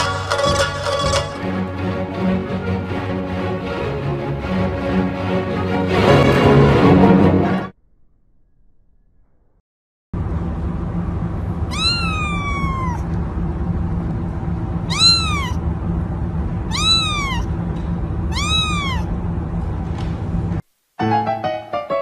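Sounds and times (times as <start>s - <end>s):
steady low hum: 10.2s - 20.6s
kitten meowing: 11.7s - 13.1s, 14.9s - 15.6s, 16.7s - 17.5s, 18.3s - 19.1s.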